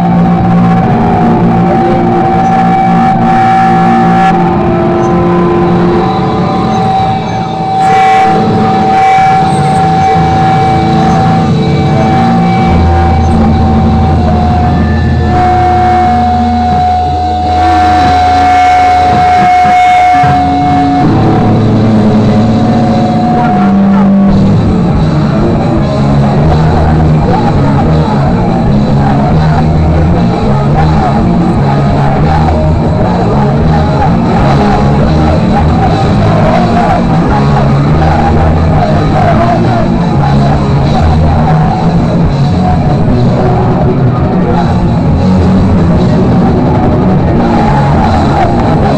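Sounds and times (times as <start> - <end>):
bass line: 0.0 - 48.9
drums: 0.0 - 48.9
live rock band playing: 0.0 - 48.9.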